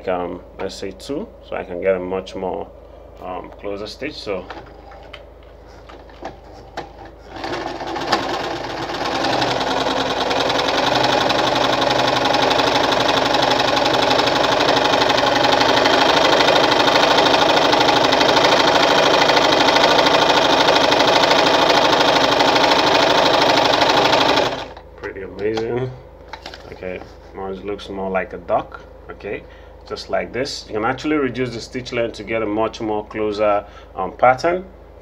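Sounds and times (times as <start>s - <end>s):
electric sewing machine stitching: 7.2s - 24.8s.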